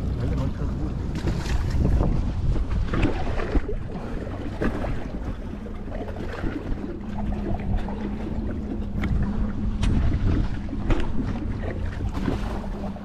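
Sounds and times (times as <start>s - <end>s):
steady low hum: 0.0s - 13.0s
wind rumbling on microphone: 0.0s - 13.0s.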